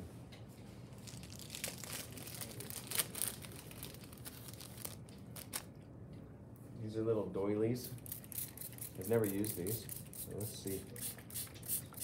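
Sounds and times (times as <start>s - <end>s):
paper crinkling and rustling: 0.8s - 5.7s.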